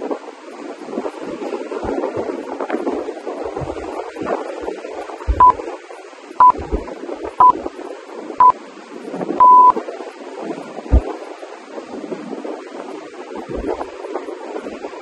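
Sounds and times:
surf: 0:00.0 - 0:15.0
wind: 0:00.0 - 0:15.0
timer countdown beeps: 0:05.3 - 0:05.6, 0:06.4 - 0:06.7, 0:09.4 - 0:09.8.

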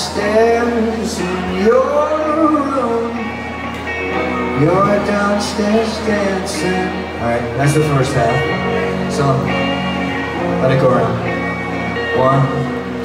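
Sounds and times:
man singing: 0:00.0 - 0:03.5, 0:04.2 - 0:09.8
electric guitar: 0:00.0 - 0:13.0.

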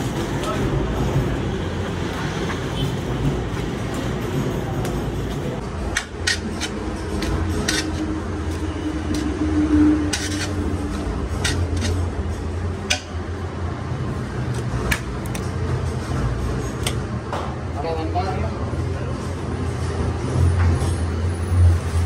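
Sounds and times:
metal pots and utensils clinking: 0:05.7 - 0:09.4, 0:10.1 - 0:13.2.

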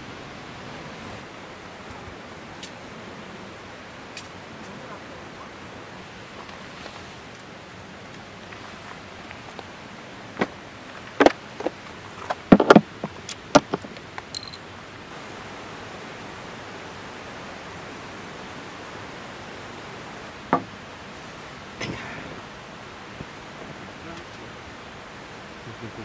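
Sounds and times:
steady hiss: 0:00.0 - 0:26.0
sharp knocks and clacks: 0:10.4 - 0:14.6.

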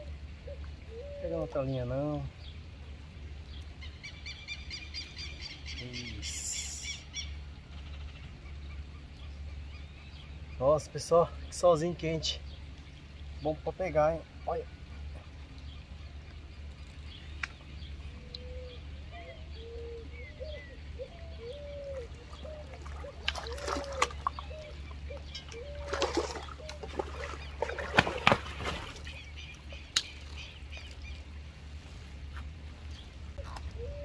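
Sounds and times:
fish splashing at water surface: 0:22.0 - 0:30.5.

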